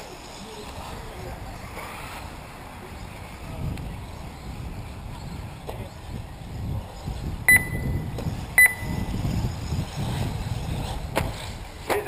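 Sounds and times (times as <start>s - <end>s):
short high electronic beeps: 7.5s - 8.0s, 8.6s - 9.0s.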